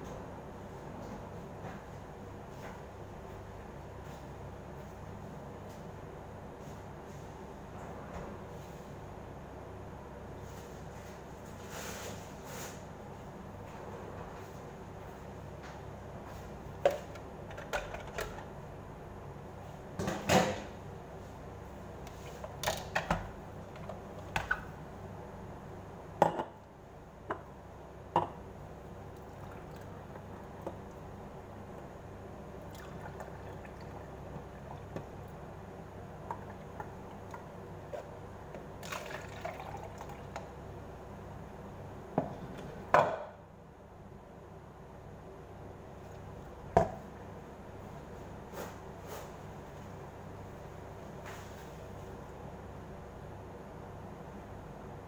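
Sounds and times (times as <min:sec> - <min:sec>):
juice pouring into glasses: 0:38.8 - 0:40.4.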